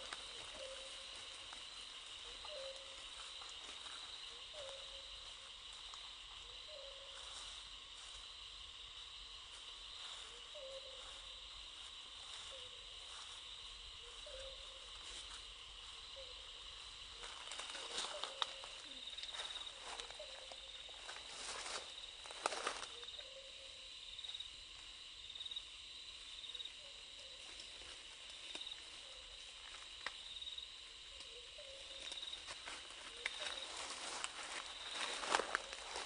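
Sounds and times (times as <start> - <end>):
dry leaves crackling: 0.0 - 8.3, 9.6 - 23.2, 31.3 - 36.0
pulsing insect drone: 0.0 - 36.0.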